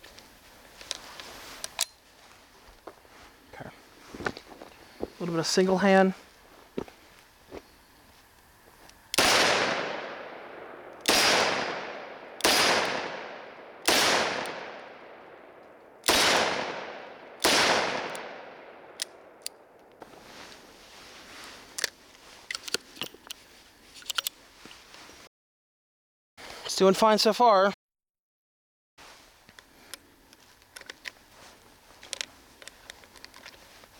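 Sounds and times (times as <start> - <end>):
metallic clicks of revolver cylinder: 18.9 - 20.0.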